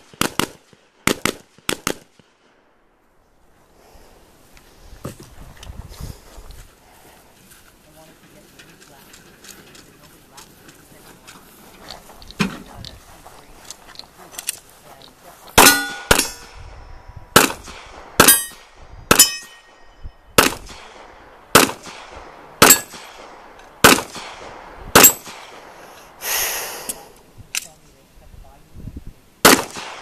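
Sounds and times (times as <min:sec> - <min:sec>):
gunshots: 0:00.0 - 0:02.4, 0:15.6 - 0:16.6, 0:17.3 - 0:19.7, 0:20.4 - 0:25.9, 0:29.4 - 0:30.0
steel plate ringing from hit: 0:15.6 - 0:16.5, 0:18.2 - 0:20.1, 0:22.6 - 0:23.1.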